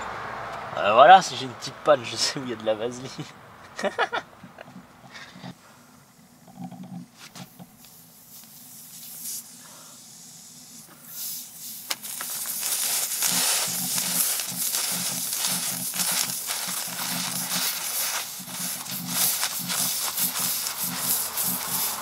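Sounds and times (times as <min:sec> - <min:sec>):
reamer rasping in tyre rubber: 0:04.4 - 0:22.0.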